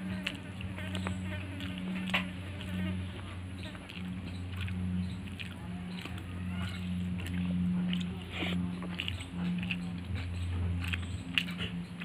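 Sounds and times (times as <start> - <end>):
chewing and wet mouth clicks: 0.0 - 12.0
steady low hum: 0.0 - 12.0.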